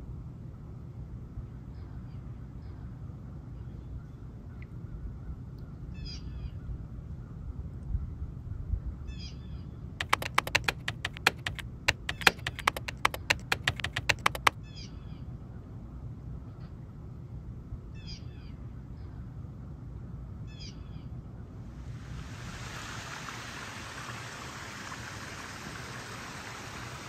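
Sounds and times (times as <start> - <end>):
sharp clicks: 10.0 - 14.6.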